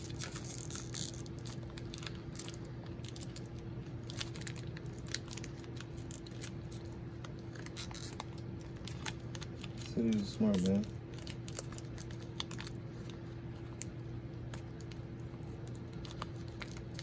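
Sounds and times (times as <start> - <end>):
cards and wrappers crinkling: 0.0 - 17.0
steady low hum: 0.0 - 17.0.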